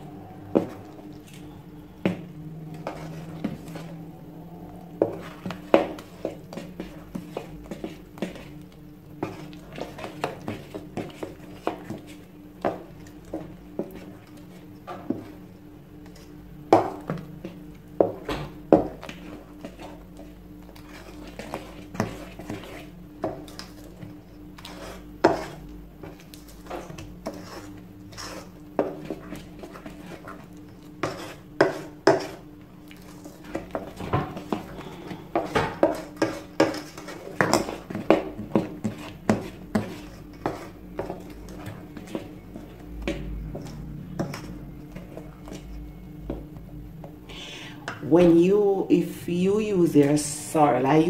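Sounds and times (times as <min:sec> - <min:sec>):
low hum: 0:00.0 - 0:09.8, 0:40.2 - 0:48.3
utensil scraping metal bowl: 0:20.7 - 0:25.7, 0:26.6 - 0:42.8.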